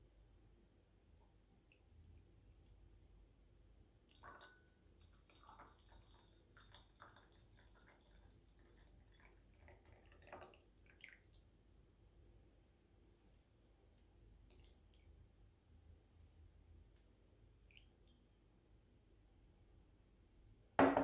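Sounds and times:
tea pouring into glass pitcher: 0:04.0 - 0:11.4
liquid dripping: 0:04.0 - 0:11.5, 0:14.4 - 0:15.3, 0:17.6 - 0:18.4.

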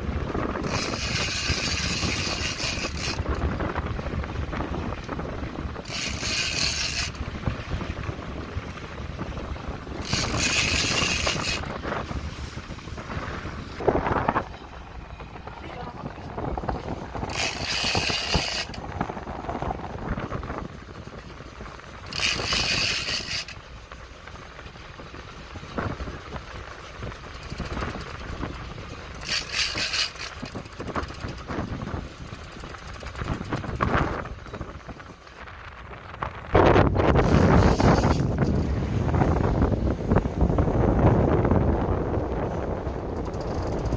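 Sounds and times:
boat engine low rumble: 0:00.0 - 0:43.9
wind on microphone: 0:00.0 - 0:43.9
fishing reel buzzing: 0:00.6 - 0:03.2, 0:05.8 - 0:07.2, 0:10.0 - 0:11.6, 0:17.3 - 0:18.8, 0:22.1 - 0:23.6, 0:29.2 - 0:31.5.

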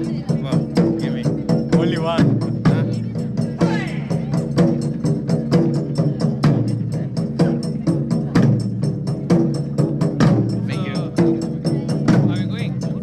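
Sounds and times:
taiko drums playing fast rhythm: 0:00.0 - 0:13.0.

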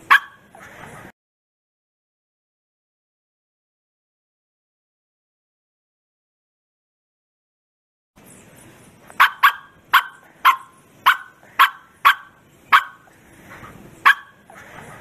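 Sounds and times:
dog barking: 0:00.0 - 0:00.9, 0:09.2 - 0:13.1, 0:14.0 - 0:14.9.

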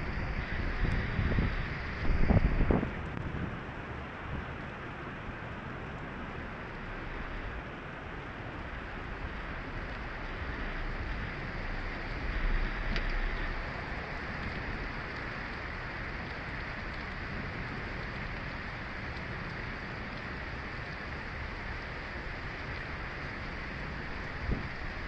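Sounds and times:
heavy rain on a car roof: 0:00.0 - 0:25.0.

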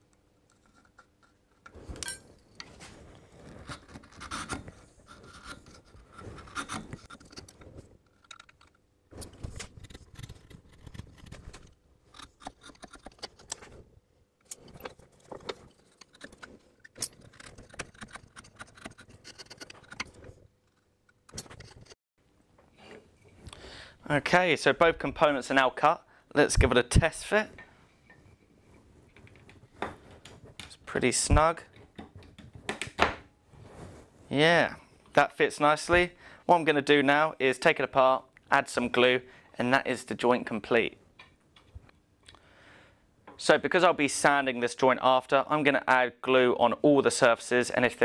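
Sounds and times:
chisel scraping wood: 0:03.4 - 0:08.2, 0:09.2 - 0:13.8, 0:14.6 - 0:22.0
small clicks and knocks: 0:03.6 - 0:13.8.

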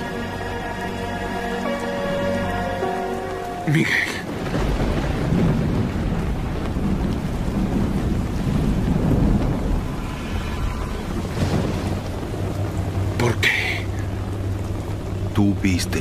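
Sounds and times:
heavy rain falling: 0:00.0 - 0:16.0
thunder rumbling: 0:00.0 - 0:16.0.

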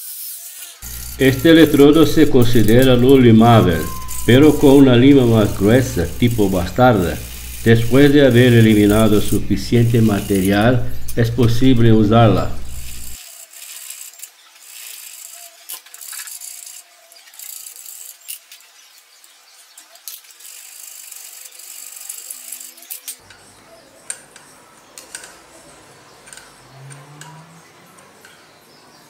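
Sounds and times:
file rasping on metal: 0:00.5 - 0:11.2.

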